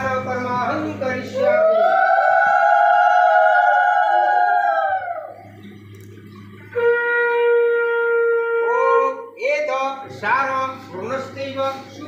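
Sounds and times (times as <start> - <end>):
conch shell blasts: 6.8 - 8.8.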